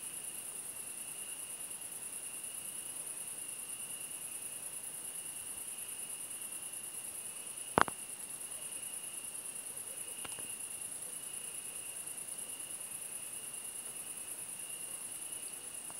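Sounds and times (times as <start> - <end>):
crickets trilling: 0.0 - 15.9.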